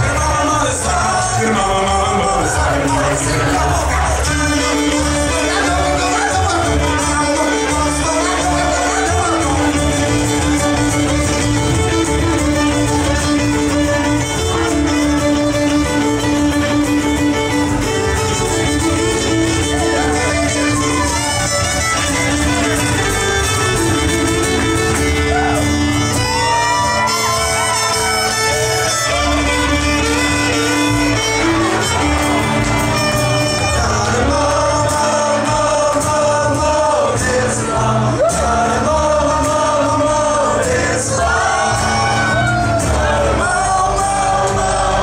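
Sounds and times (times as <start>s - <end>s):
loud singing and shouted vocals: 0.0s - 11.2s, 31.8s - 45.0s
drums: 0.0s - 45.0s
strummed acoustic guitars: 0.0s - 45.0s
upright bass: 0.0s - 45.0s
bowed fiddle: 2.2s - 44.6s.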